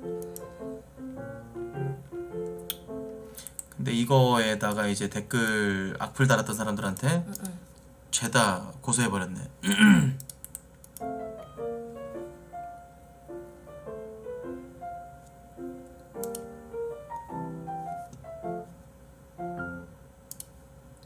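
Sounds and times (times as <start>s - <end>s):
soft piano music: 0.0s - 5.2s, 11.0s - 20.2s.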